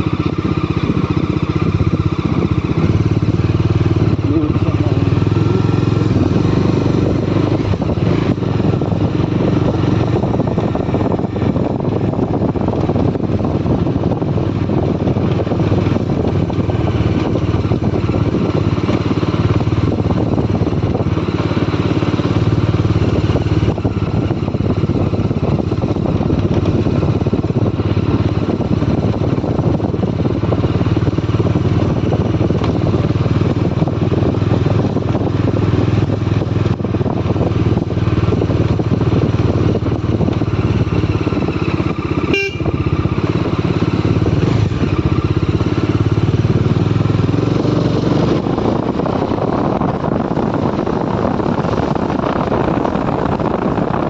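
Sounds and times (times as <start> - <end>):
motorcycle engine running: 0.0 - 54.0
wind and road noise: 0.0 - 54.0.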